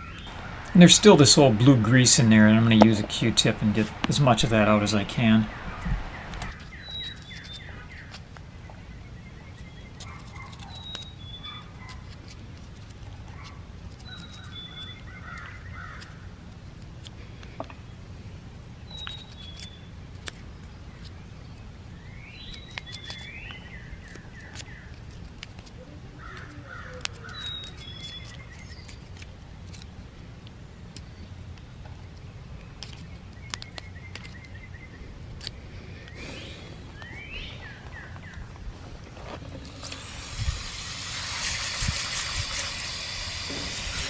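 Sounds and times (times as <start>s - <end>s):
birds singing whistled phrases: 3.9s - 11.7s, 14.0s - 16.0s, 18.9s - 19.9s, 21.9s - 25.0s, 26.7s - 29.0s, 36.0s - 38.5s.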